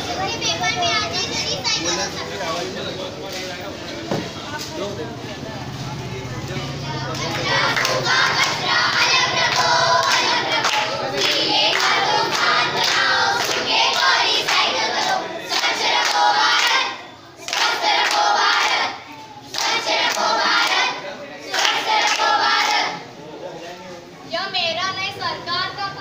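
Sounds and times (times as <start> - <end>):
hand clapping: 7.1 - 14.6
children singing in chorus: 7.1 - 23.0.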